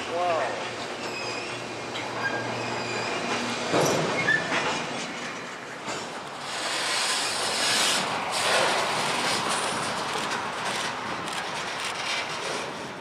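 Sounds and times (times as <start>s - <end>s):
train wheels clattering over rails: 0.0s - 13.0s
high wheel squeal: 1.0s - 9.8s.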